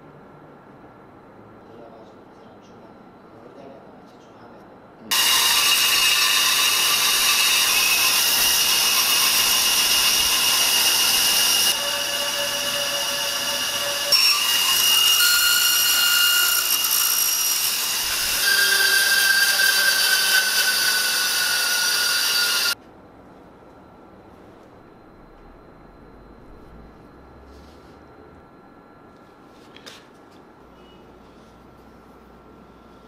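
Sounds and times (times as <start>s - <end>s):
band saw cutting wood: 5.1s - 22.8s.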